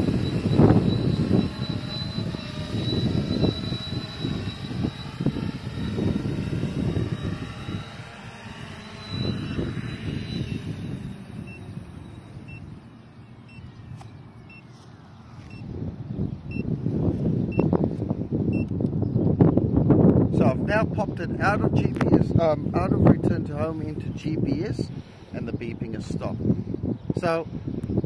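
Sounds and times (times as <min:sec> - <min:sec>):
short controller beeps: 0:00.0 - 0:12.8, 0:13.4 - 0:13.8, 0:14.4 - 0:14.7, 0:15.4 - 0:15.7, 0:16.5 - 0:16.7, 0:17.5 - 0:17.7, 0:18.5 - 0:18.7
wind buffeting microphone: 0:00.0 - 0:14.4, 0:15.3 - 0:28.0
drone propellers whining: 0:00.0 - 0:28.0.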